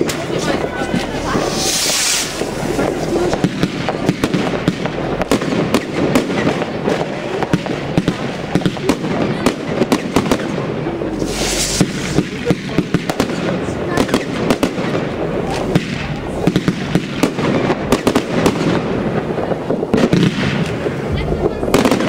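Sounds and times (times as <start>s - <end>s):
firework hiss: 0.0s - 22.0s
fireworks bangs and pops: 0.0s - 22.0s.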